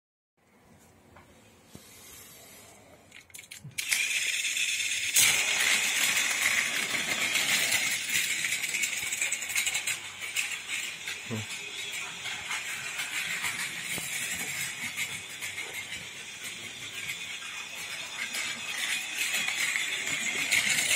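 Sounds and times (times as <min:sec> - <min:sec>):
toy train motor whirring: 0:02.1 - 0:20.9
wheels rattling over track: 0:03.8 - 0:20.9.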